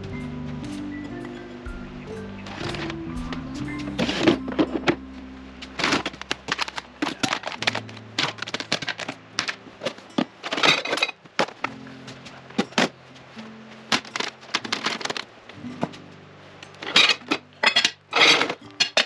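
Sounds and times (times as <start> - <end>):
quiet background music: 0.0 - 19.0
dishes and utensils clinking: 0.6 - 15.2, 16.6 - 19.0
drawer opening: 2.5 - 3.0.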